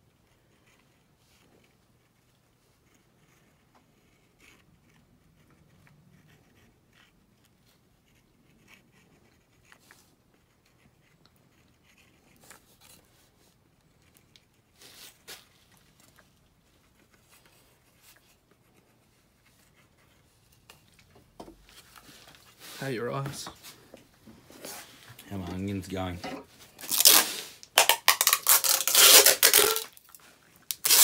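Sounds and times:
faint handling noises: 9.2 - 27.8.

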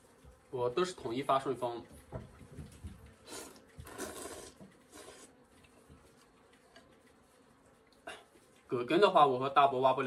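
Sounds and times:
quiet chewing: 1.6 - 9.1
person slurping noodles: 3.2 - 5.4.

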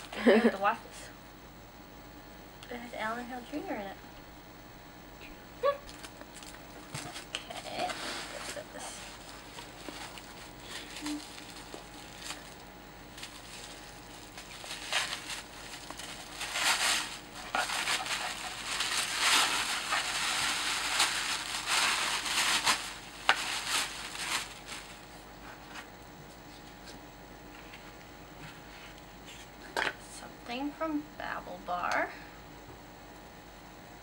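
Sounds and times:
tissue paper rustling and crinkling: 5.9 - 25.7.

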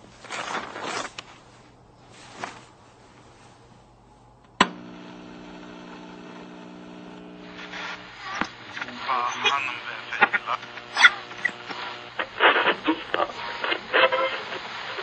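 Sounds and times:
electrical hum: 0.0 - 15.0
radio switch click: 4.5 - 5.0.

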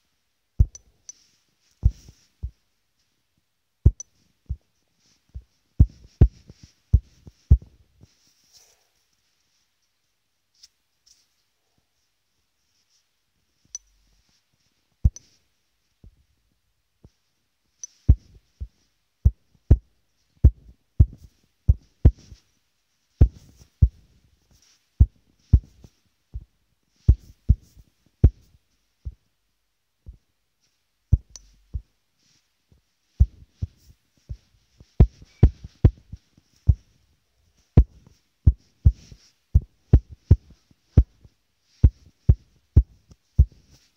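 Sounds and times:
fingertip taps on touchscreen: 0.6 - 0.8, 3.9 - 4.6, 15.1 - 15.3, 31.2 - 31.5.

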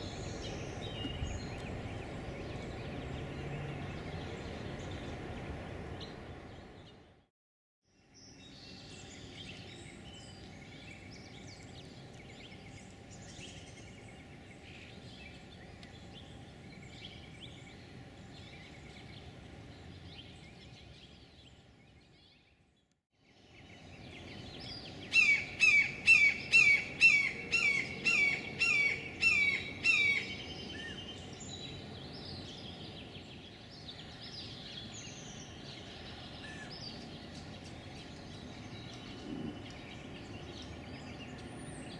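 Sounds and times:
small birds chirping: 0.0 - 7.3, 7.9 - 41.9.

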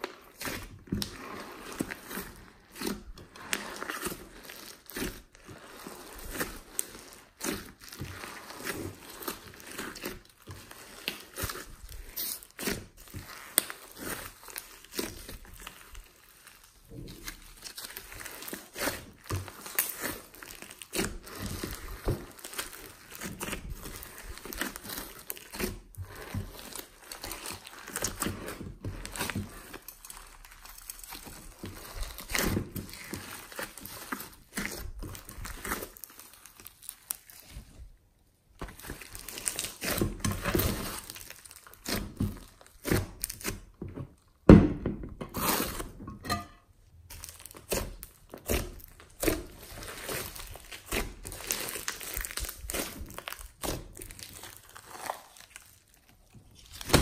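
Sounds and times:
slime crackling and popping: 0.0 - 37.8, 38.5 - 44.4, 45.4 - 57.0.

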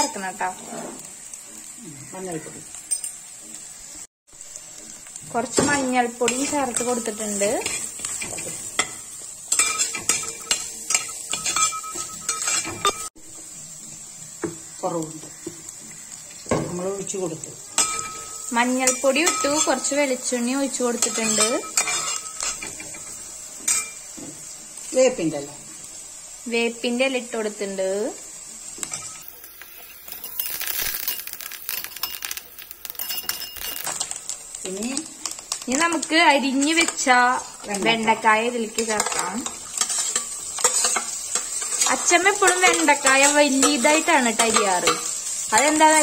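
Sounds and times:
leaves crackling in hot oil: 0.0 - 46.0
metal spatula scraping a pan: 0.1 - 1.3, 5.7 - 13.1, 17.7 - 24.1, 38.8 - 46.0.

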